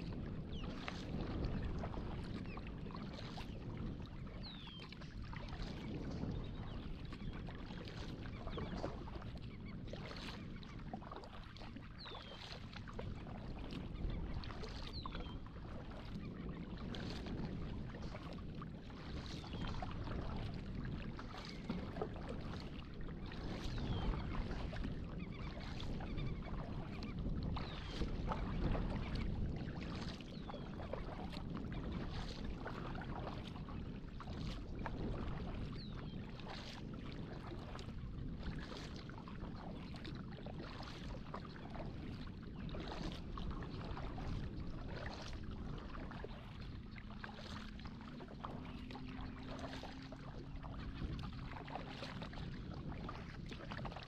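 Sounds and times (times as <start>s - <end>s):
paddle splashing in water: 0.0s - 54.0s
water running along hull: 0.0s - 54.0s.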